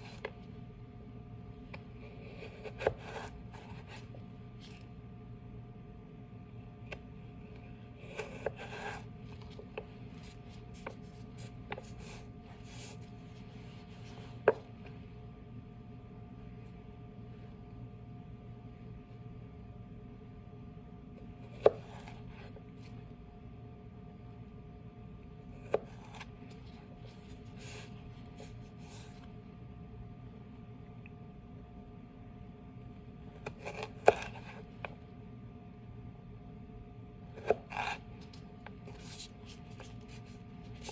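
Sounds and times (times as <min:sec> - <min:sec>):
knife slicing carrot: 0:02.2 - 0:04.8, 0:08.0 - 0:13.0, 0:33.4 - 0:34.7, 0:37.4 - 0:40.9.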